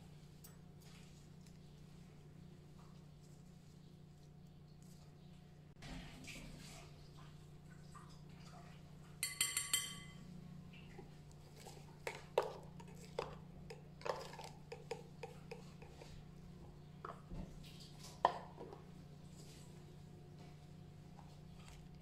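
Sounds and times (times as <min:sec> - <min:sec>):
metal spoon tapping glass bowl: 0:09.2 - 0:10.2.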